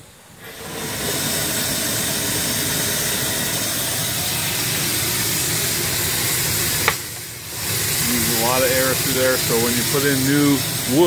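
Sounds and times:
steam hissing: 0:00.0 - 0:11.0.

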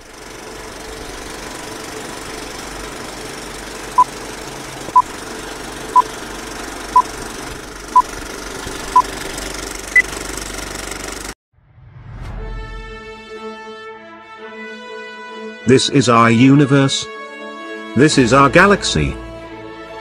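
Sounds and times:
film projector clattering whir: 0:00.0 - 0:11.4.

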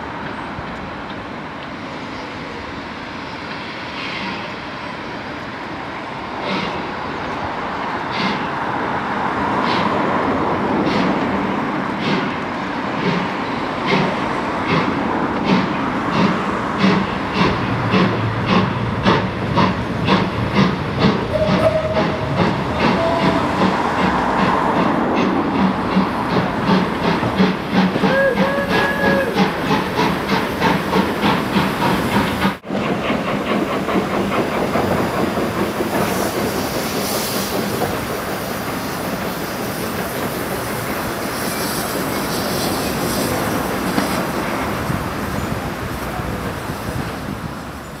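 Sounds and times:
steam train chuffing: 0:07.8 - 0:48.0
steam hissing: 0:12.0 - 0:48.0.

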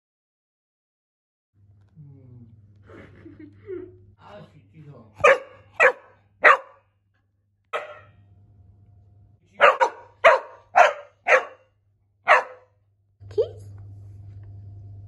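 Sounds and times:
dog barking: 0:05.2 - 0:06.9, 0:07.7 - 0:08.2, 0:09.6 - 0:12.8.

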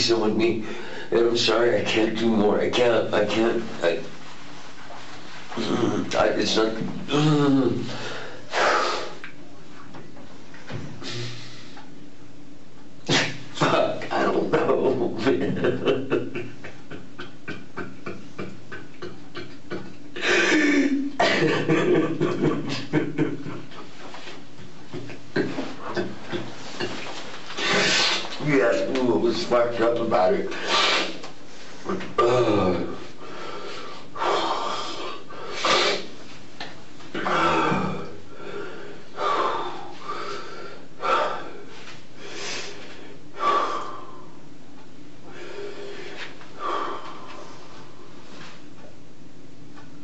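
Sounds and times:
recording hiss: 0:00.0 - 0:12.2, 0:13.0 - 0:48.9
man sobbing: 0:07.1 - 0:08.3, 0:15.1 - 0:24.3, 0:31.9 - 0:33.1, 0:37.2 - 0:38.1.

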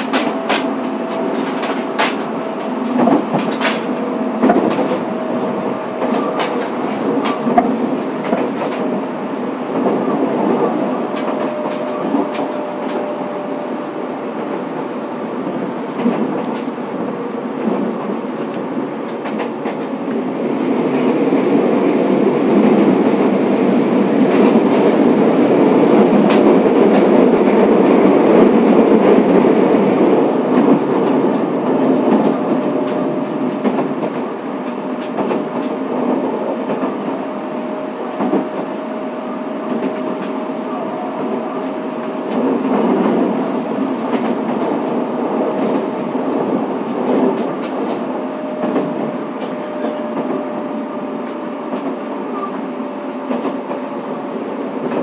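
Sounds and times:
rail clicks: 0:00.0 - 0:55.0
train wheels rumbling on rails: 0:00.0 - 0:55.0.

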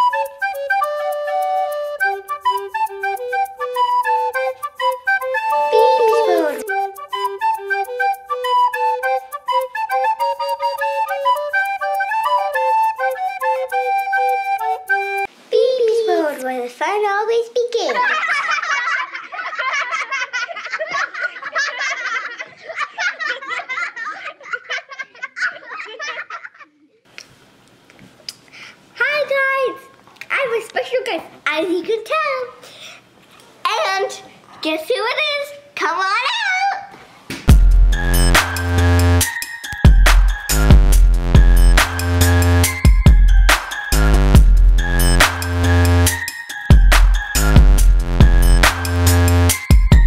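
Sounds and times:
young child laughing: 0:05.7 - 0:07.0
electronic music with heavy bass: 0:37.5 - 0:39.3, 0:39.9 - 0:50.0.

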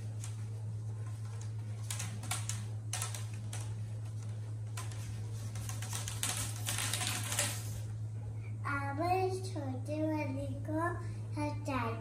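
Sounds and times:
steady low hum: 0:00.0 - 0:12.0
hula hoops clicking: 0:04.7 - 0:07.8.

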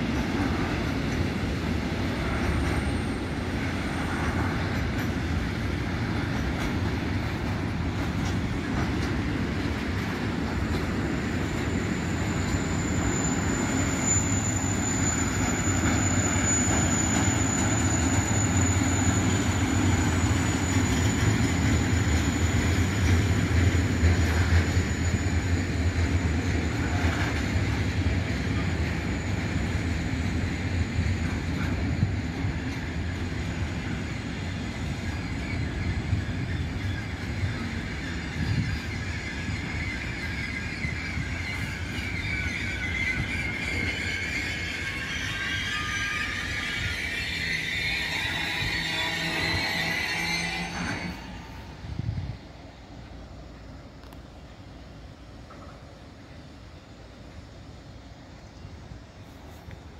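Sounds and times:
train wheels rumbling on rail: 0:00.0 - 0:59.9
thin high squeal: 0:11.1 - 0:25.6, 0:35.3 - 0:52.0.

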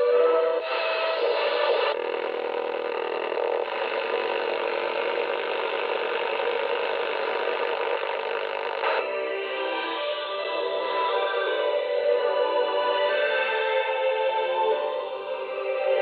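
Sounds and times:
radio static: 0:00.6 - 0:09.1.

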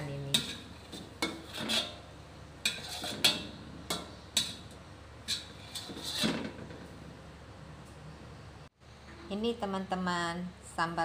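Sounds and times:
spatula scraping a wok: 0:00.0 - 0:06.9.

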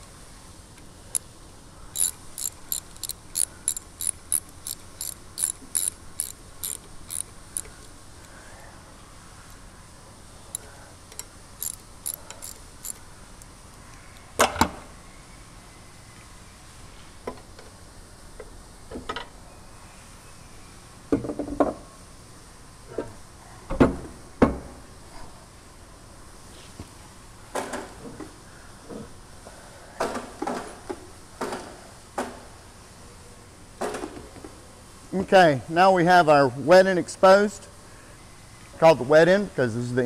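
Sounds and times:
tools knocking on pump parts: 0:02.0 - 0:07.7.

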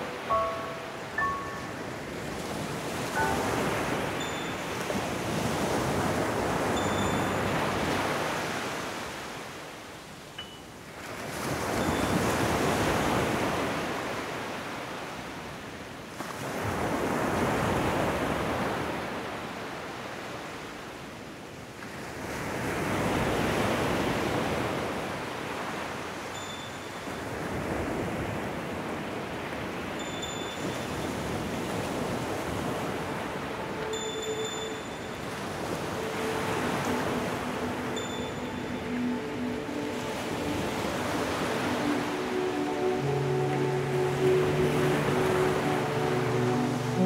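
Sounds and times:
small waves washing on beach: 0:00.0 - 0:47.0.

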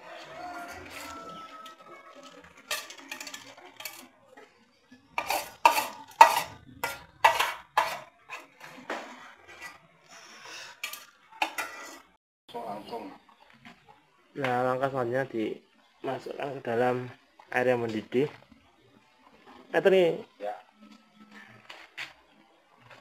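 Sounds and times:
metal pots and utensils clattering: 0:00.2 - 0:09.9, 0:10.6 - 0:12.2.

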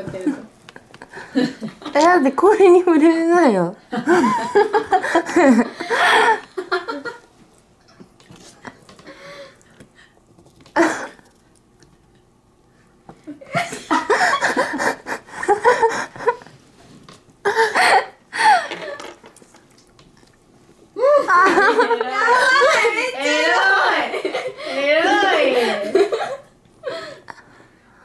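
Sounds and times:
women laughing and breathing hard: 0:00.8 - 0:01.9, 0:03.9 - 0:07.2, 0:13.2 - 0:16.5, 0:17.4 - 0:19.0, 0:24.1 - 0:27.6.

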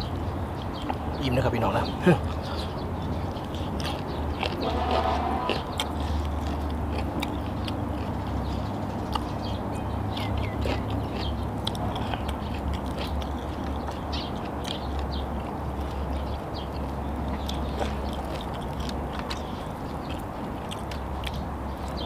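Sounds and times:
person chewing with wet smacks: 0:02.3 - 0:22.0.

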